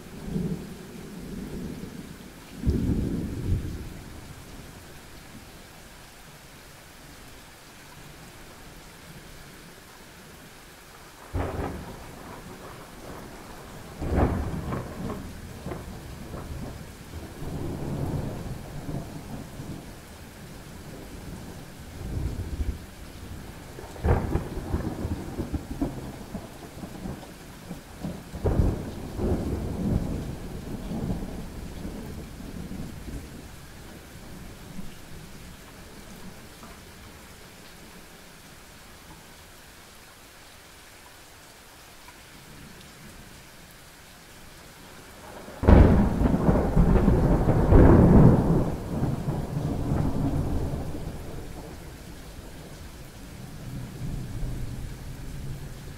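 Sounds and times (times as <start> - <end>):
steady rain: 0.0 - 55.9
thunder cracking and rumbling: 11.3 - 19.8, 23.4 - 33.5, 45.2 - 51.9.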